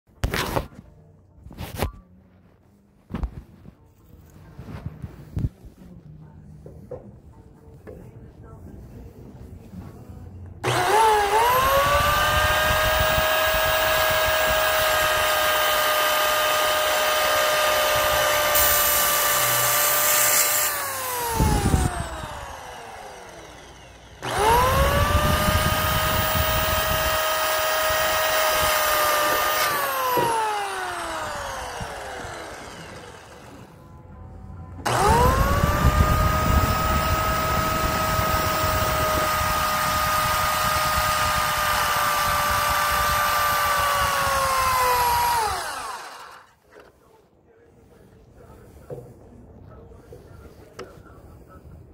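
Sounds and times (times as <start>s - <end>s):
circular saw motor whining: 10.6s - 34.0s, 34.7s - 46.6s.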